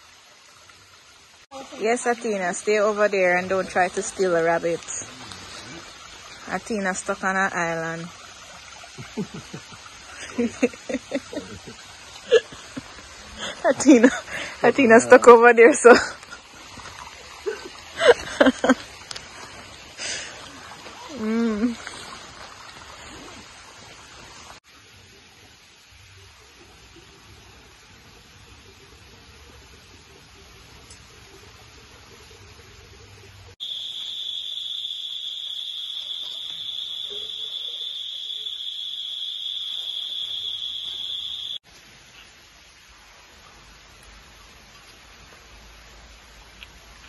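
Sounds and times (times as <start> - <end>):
background hiss: 0.0 - 32.6, 33.5 - 47.0
insect chorus buzzing: 1.6 - 15.6, 33.6 - 41.6.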